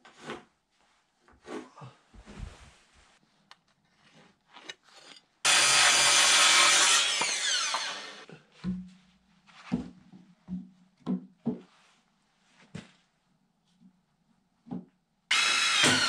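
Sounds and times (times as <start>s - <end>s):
circular saw cutting wood: 5.5s - 8.3s, 15.3s - 16.0s.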